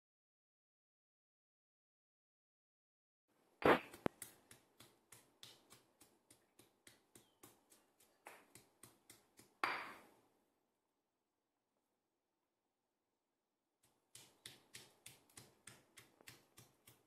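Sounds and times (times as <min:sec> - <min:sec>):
stone pestle pounding in mortar: 0:03.7 - 0:10.0, 0:14.1 - 0:17.0.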